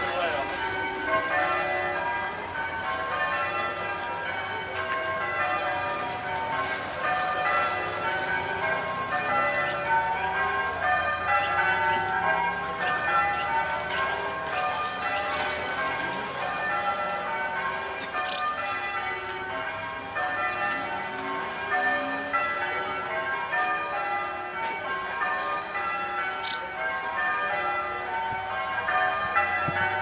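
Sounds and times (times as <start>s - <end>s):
church bells ringing a peal: 0.0s - 30.0s.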